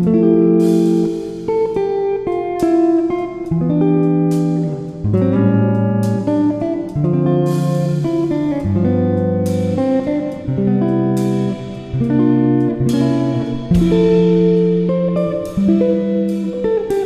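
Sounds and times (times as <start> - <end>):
plucked guitar notes: 0.0 - 17.0
held bass notes: 4.7 - 16.8.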